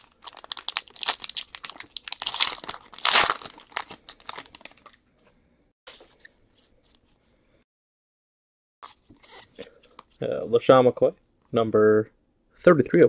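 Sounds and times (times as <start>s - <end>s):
foil wrapper crinkling and tearing: 0.0s - 5.0s.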